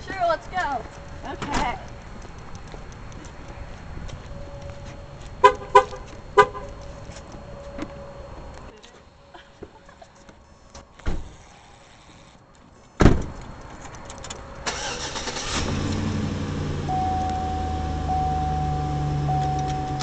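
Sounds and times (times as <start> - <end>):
car door slamming: 13.0 - 13.4
car engine starting and idling: 14.5 - 20.0
car warning tone: 16.8 - 20.0.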